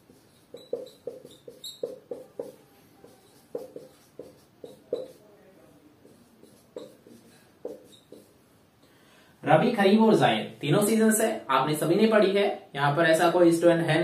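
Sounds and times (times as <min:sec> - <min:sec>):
marker squeaking on whiteboard: 0:00.0 - 0:05.3, 0:06.0 - 0:08.4.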